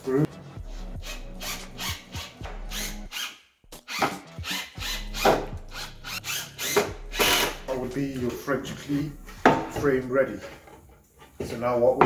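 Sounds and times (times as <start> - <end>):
impact driver driving screw: 1.0 - 7.6.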